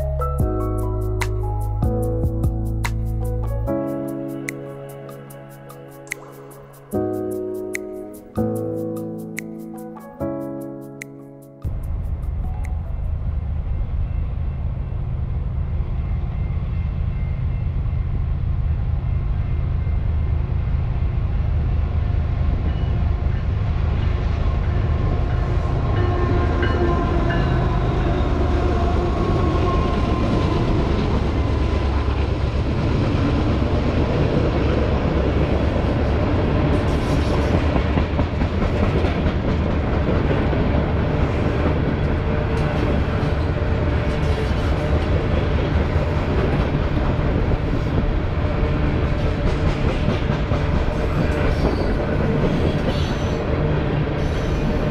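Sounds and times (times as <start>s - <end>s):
diesel locomotives running: 11.9s - 54.9s.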